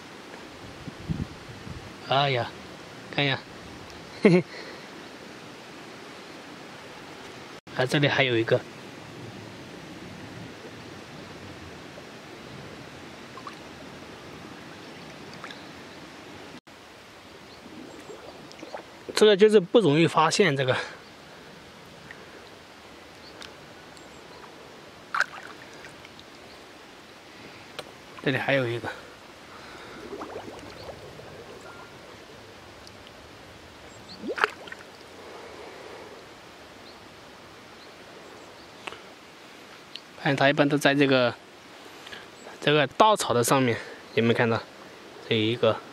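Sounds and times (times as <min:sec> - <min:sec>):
water sloshing and trickling: 0:13.3 - 0:14.0, 0:14.6 - 0:16.0, 0:17.3 - 0:19.2, 0:24.3 - 0:26.6, 0:28.0 - 0:35.1
water plop: 0:17.8 - 0:18.9, 0:25.1 - 0:25.9, 0:29.8 - 0:31.8, 0:34.1 - 0:34.9.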